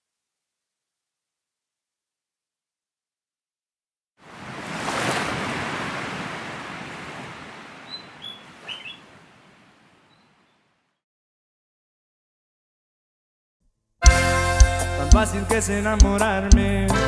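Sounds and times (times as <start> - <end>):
ocean wave washing in: 4.2 - 10.2
high bird chirps: 7.8 - 9.1, 10.1 - 10.6.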